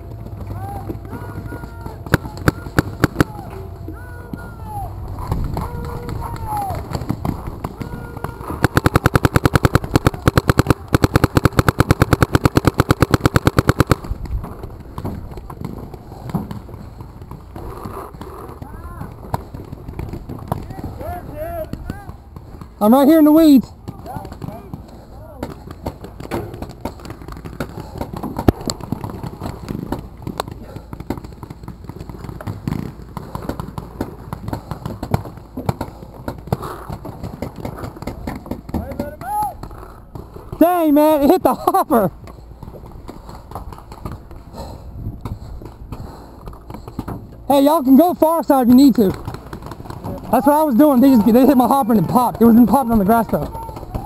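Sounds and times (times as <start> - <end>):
sharp clicks and pops: 2.1 - 3.4, 5.2 - 18.7
paintball marker firing rapidly: 2.1 - 3.5, 5.6 - 15.0, 47.6 - 54.0.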